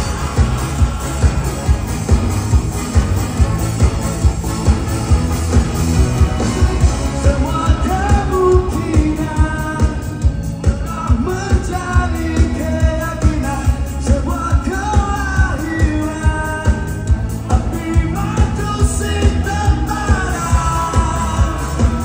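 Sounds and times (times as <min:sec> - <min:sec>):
drum beat: 0:00.0 - 0:22.0
electric guitar: 0:00.0 - 0:22.0
man singing: 0:06.9 - 0:22.0.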